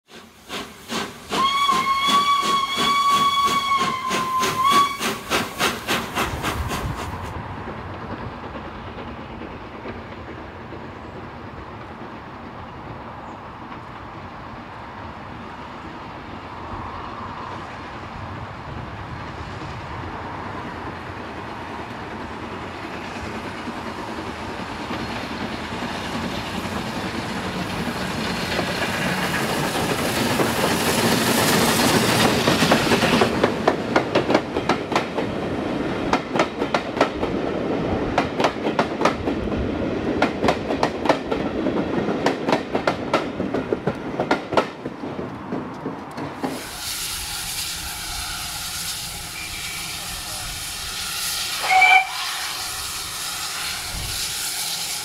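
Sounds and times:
approaching steam train: 0.0 - 55.0
steam locomotive whistle: 0.1 - 6.0, 46.5 - 55.0
steam engine chuffing: 0.1 - 7.3.

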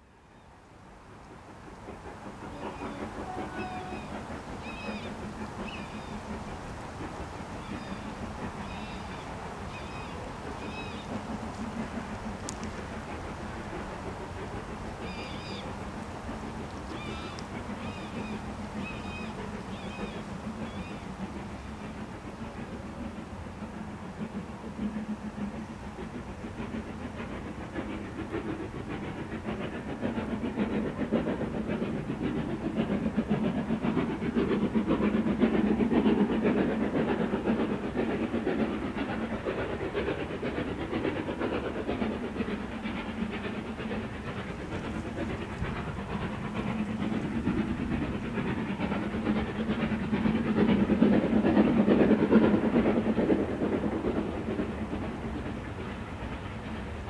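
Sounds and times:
steam locomotive chuffing: 0.0 - 57.0
train running: 0.0 - 57.0.

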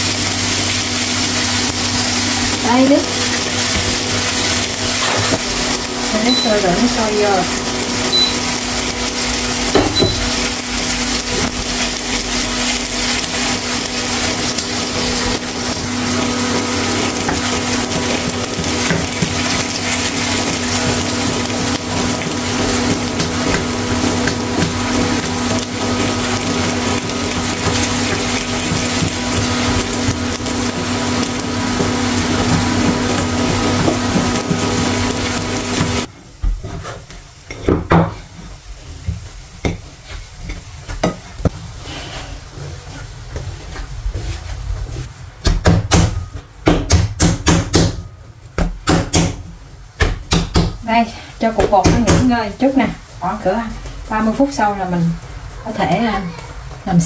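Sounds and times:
kitchen appliance motor whirring: 0.0 - 36.1.

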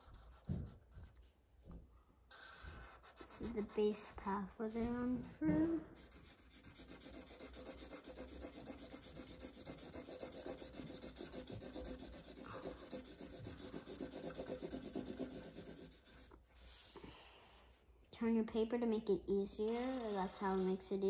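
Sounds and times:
marker scribbling on paper: 0.0 - 1.2, 2.3 - 5.1, 5.9 - 16.9.

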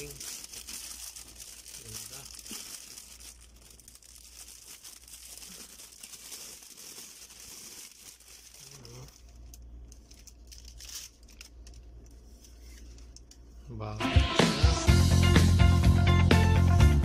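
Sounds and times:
plastic wrap crinkling and tearing: 0.0 - 13.3.

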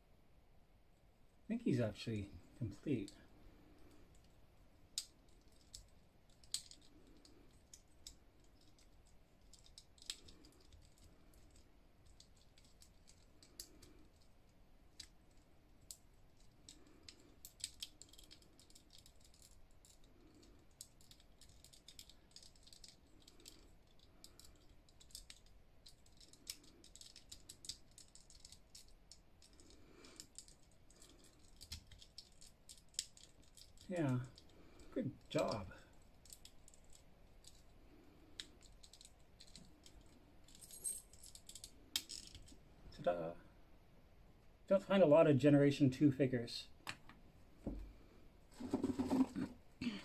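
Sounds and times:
plastic toy parts clicking: 5.0 - 34.5, 38.4 - 42.6.

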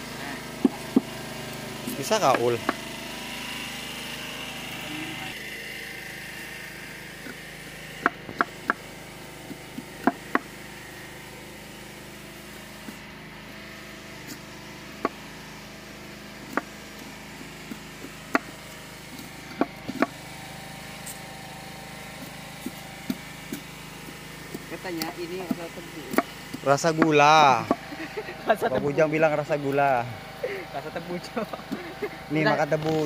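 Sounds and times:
knife chopping sugarcane: 0.6 - 2.8, 8.0 - 10.6, 14.2 - 15.3, 16.3 - 28.1, 31.5 - 32.0.

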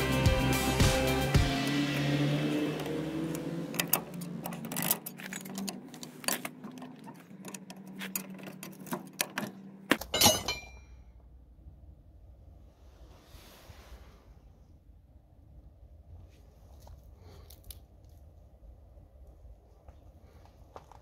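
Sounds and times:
ringing metal clank: 10.0 - 11.0.

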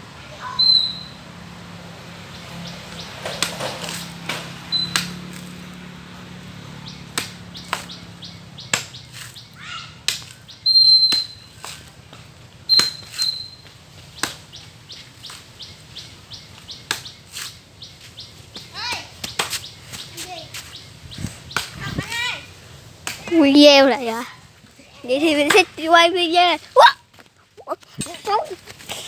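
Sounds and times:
birds chirping and whistling: 0.4 - 1.2, 2.3 - 5.3, 6.7 - 12.0, 12.6 - 22.3.

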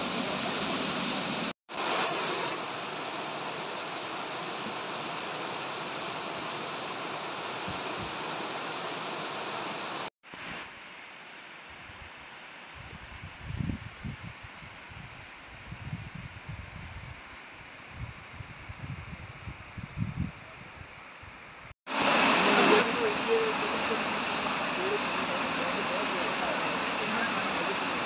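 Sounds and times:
river over stony rapids: 0.0 - 12.8, 21.4 - 28.0
water sliding down rock: 21.9 - 28.0
waterfall pouring onto rock: 21.9 - 28.0.

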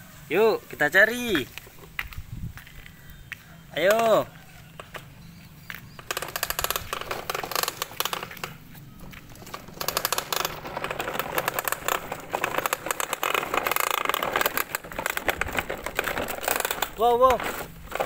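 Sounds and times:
plastic wheels rolling over gravel: 0.0 - 18.0.

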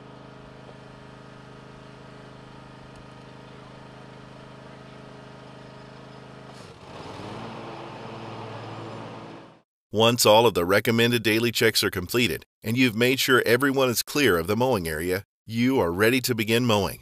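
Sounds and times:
mower engine running: 0.0 - 9.6.

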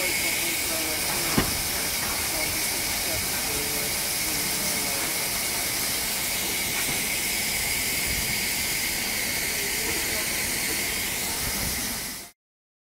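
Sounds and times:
steam hissing: 0.0 - 12.4.

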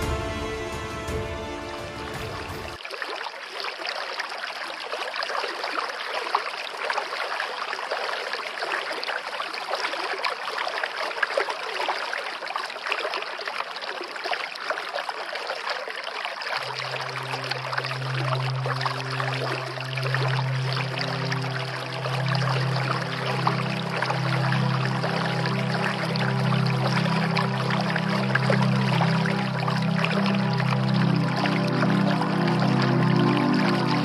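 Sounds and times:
running water: 0.0 - 34.0
low steady tone: 16.6 - 34.0.

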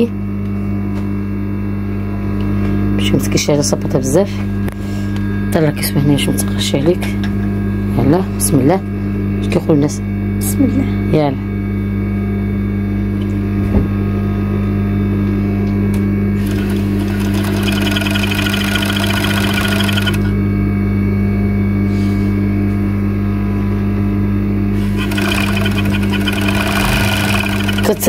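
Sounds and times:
sewing machine stitching: 16.4 - 20.3, 24.8 - 28.0
sewing machine motor humming: 16.4 - 20.4, 24.8 - 28.0.

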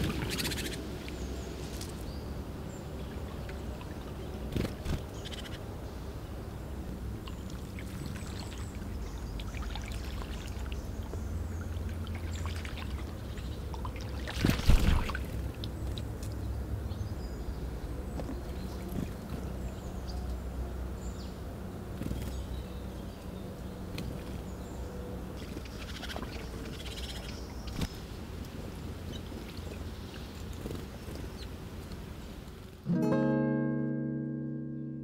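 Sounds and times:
low steady rumble: 0.0 - 32.9
songbirds chirping faintly: 0.0 - 33.2
water splash: 12.0 - 15.5.

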